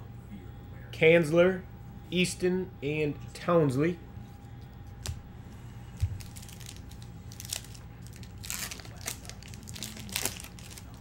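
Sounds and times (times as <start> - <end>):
foil wrapper crinkling and tearing: 6.2 - 11.0.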